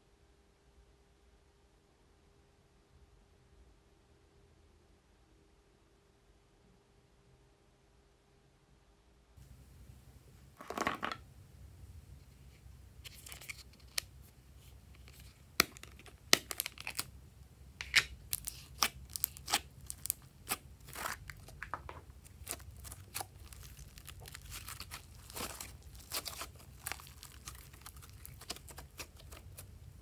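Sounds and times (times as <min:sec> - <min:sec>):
slime clicking and crackling: 0:15.0 - 0:17.1, 0:17.8 - 0:29.7.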